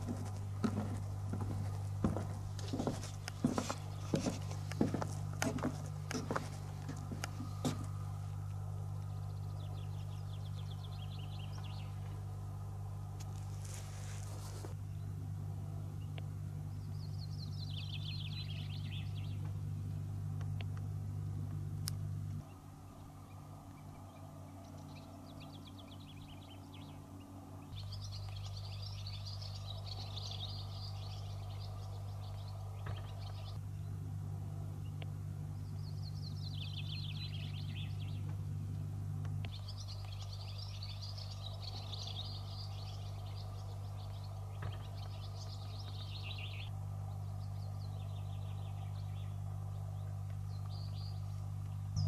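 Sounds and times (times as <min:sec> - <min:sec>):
small birds chirping: 0:00.0 - 0:52.0
steady low hum: 0:00.0 - 0:52.0.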